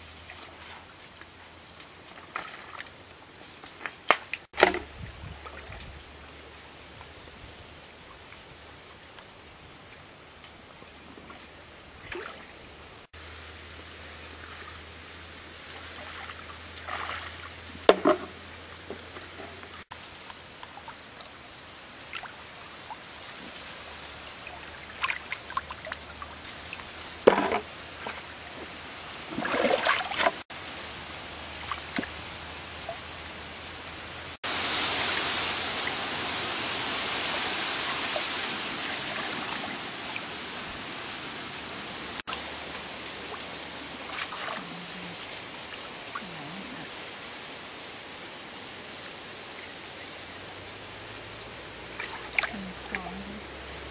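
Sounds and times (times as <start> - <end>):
rushing water: 0.0 - 53.9
water trickling: 14.2 - 33.7, 49.6 - 53.9
hands splashing in stream water: 29.3 - 30.4, 51.9 - 53.2.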